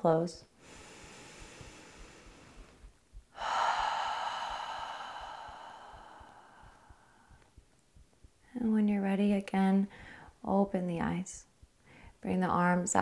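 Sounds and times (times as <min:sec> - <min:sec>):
woman breathing out: 0:00.6 - 0:07.4.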